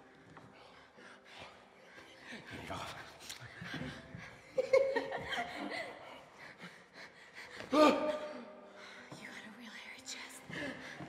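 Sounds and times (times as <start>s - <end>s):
people laughing and giggling: 2.3s - 8.0s.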